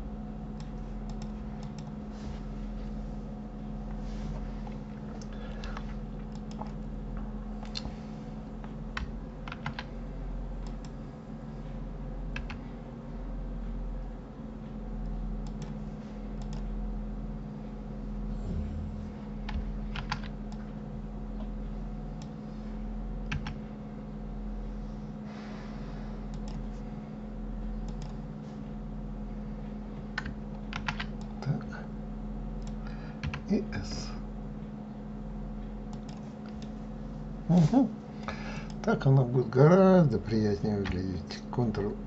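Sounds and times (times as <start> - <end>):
low electrical hum: 0.0 - 42.0
keyboard and mouse clicking: 0.6 - 2.0, 5.2 - 6.8, 8.9 - 9.9, 12.4 - 12.6, 15.4 - 15.8, 16.4 - 16.7, 19.5 - 20.7, 23.2 - 23.6, 26.3 - 26.6, 27.8 - 28.2, 30.1 - 31.4, 35.9 - 36.7.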